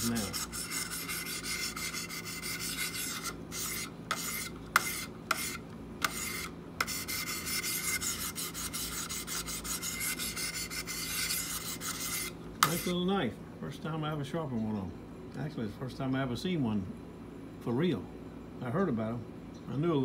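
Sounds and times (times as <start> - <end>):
sharpening stone rasping on knife: 0.0 - 13.0.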